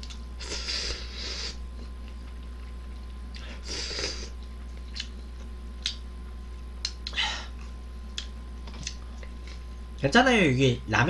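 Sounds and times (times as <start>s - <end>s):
person slurping noodles: 3.6s - 4.3s
wet chewing clicks: 4.4s - 6.0s.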